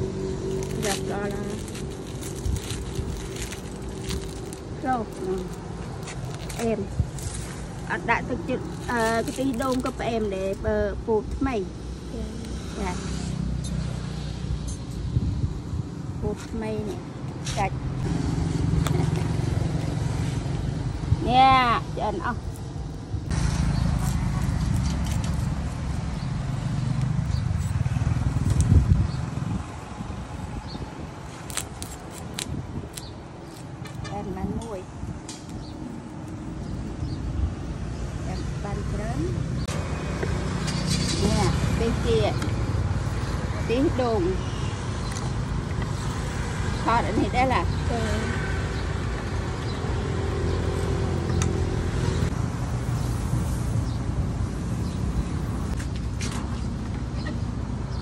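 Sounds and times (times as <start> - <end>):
street traffic rumble: 0.0 - 58.0
motor vehicle engine passing by: 11.8 - 15.8, 16.9 - 21.3, 23.3 - 30.8, 36.6 - 57.5.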